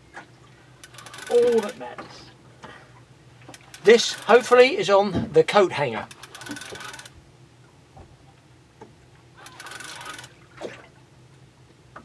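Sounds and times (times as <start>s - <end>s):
fishing reel clicking: 0.8s - 1.8s, 3.5s - 4.8s, 6.0s - 7.1s, 9.4s - 10.4s.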